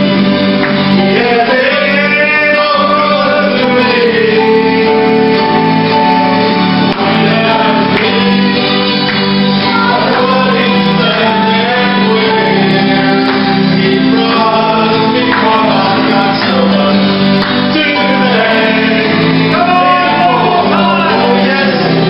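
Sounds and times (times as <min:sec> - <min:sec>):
congregation singing a hymn: 0:00.0 - 0:22.0.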